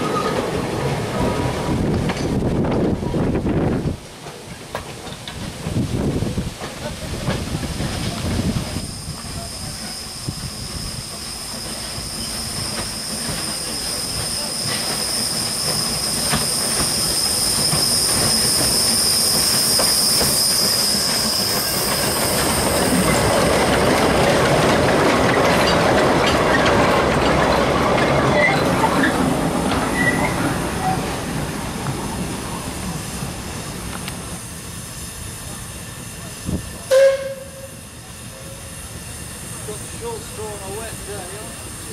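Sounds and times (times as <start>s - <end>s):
train rumbling and clattering past: 0.0s - 41.9s
train wheels squealing: 7.8s - 24.4s, 25.0s - 31.3s.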